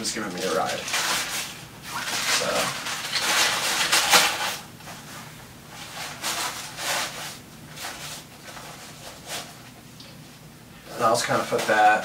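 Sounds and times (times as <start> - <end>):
plastic bags crinkling: 0.2 - 4.7.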